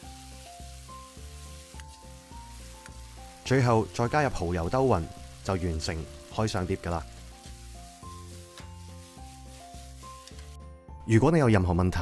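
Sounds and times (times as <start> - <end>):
wok stir-fry sizzling: 0.0 - 10.7
background music: 0.0 - 12.0.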